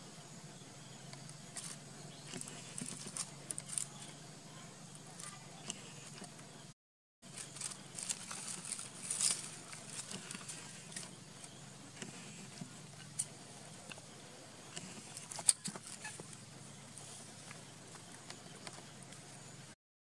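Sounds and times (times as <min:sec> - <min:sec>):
faint steady hum: 0:00.0 - 0:19.8
monkey scrabbling over stones and leaves: 0:07.3 - 0:11.2.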